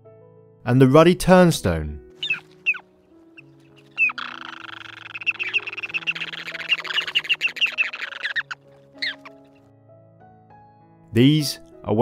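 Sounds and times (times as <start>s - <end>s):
birds calling falling notes: 2.1s - 9.6s
birds chattering twitter: 2.2s - 9.6s.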